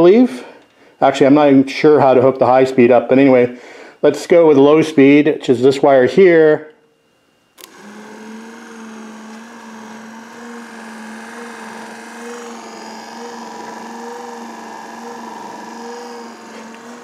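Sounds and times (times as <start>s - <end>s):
electric wiper motor humming: 7.6s - 17.0s.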